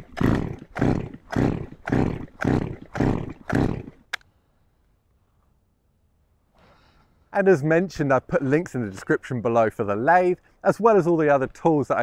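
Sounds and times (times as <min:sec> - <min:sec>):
chainsaw pull-starter whirring: 0:00.0 - 0:04.2.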